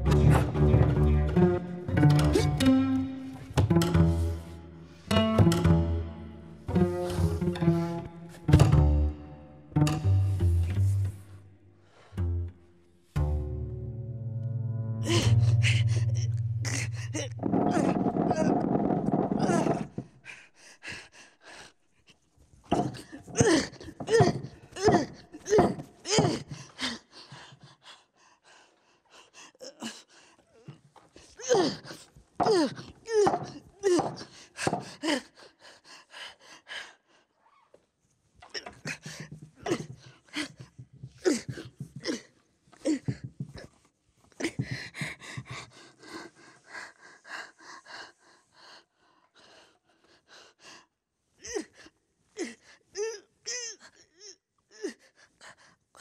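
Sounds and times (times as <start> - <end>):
woman gasping: 15.0 - 17.3.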